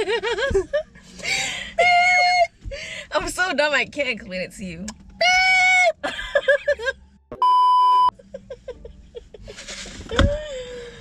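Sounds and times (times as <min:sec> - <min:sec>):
people laughing: 0:00.0 - 0:00.9, 0:06.1 - 0:07.0, 0:08.1 - 0:10.2
censor bleep: 0:07.4 - 0:08.1.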